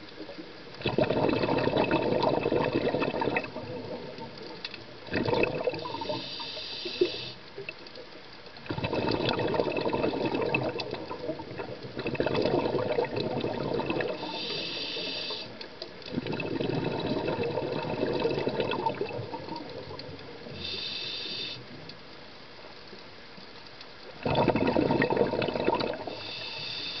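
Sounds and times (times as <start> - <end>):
bubbling exhalations: 0.8 - 7.7, 8.6 - 21.1, 24.2 - 26.9
regulator inhalation hiss: 5.8 - 7.5, 14.1 - 15.7, 20.5 - 21.8, 26.0 - 27.0.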